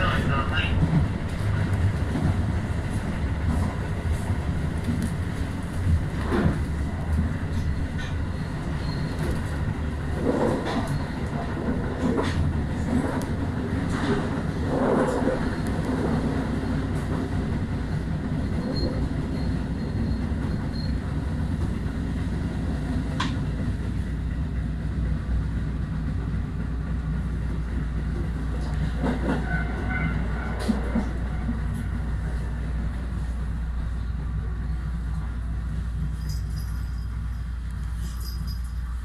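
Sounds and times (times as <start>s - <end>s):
train wheels rumbling on rail: 0.0s - 39.0s
level-crossing warning bell: 35.9s - 39.0s.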